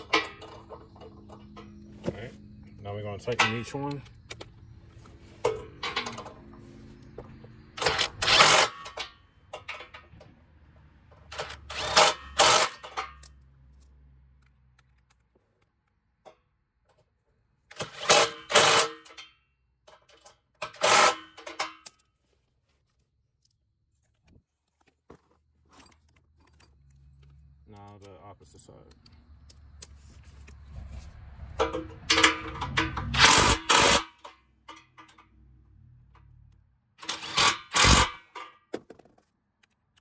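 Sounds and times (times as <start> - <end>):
impact wrench hammering nuts: 7.8 - 10.0, 11.3 - 13.3, 17.7 - 19.3, 20.2 - 22.0, 31.6 - 35.2, 37.0 - 39.1.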